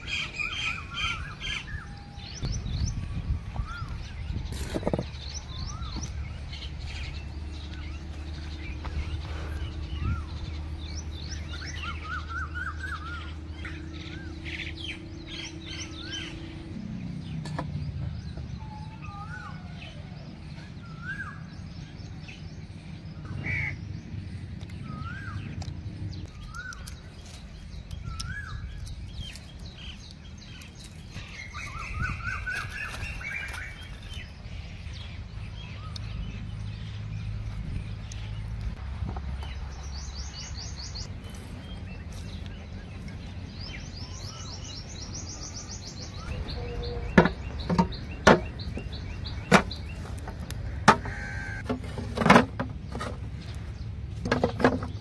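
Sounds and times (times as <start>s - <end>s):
low steady hum: 0.0s - 39.9s
songbirds chirping: 0.0s - 55.0s.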